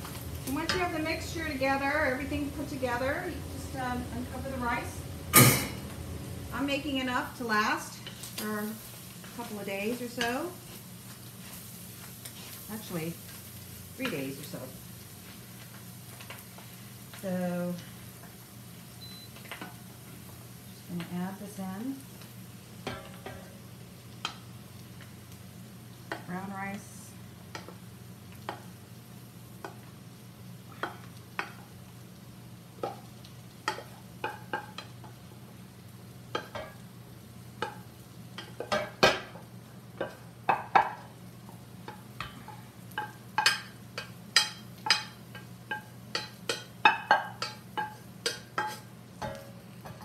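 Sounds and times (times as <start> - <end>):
low hum: 0.0 - 8.9
light sizzle: 0.0 - 50.0.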